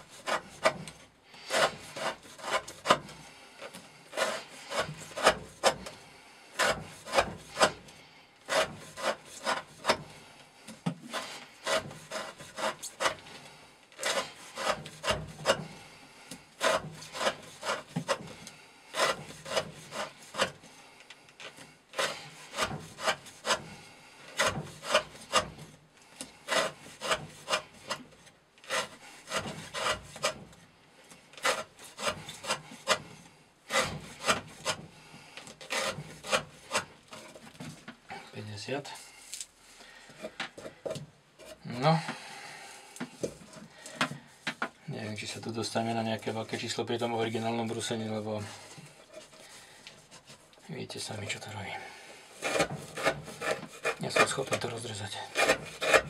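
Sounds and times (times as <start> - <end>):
knife scraping wood: 0.0 - 42.3, 42.9 - 56.0.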